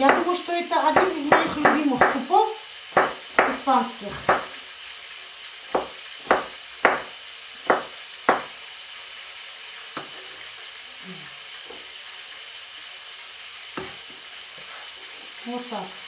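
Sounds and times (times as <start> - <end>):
food sizzling in frying pan: 0.0 - 16.0
utensil knocking against pan: 5.7 - 7.1, 7.7 - 8.5.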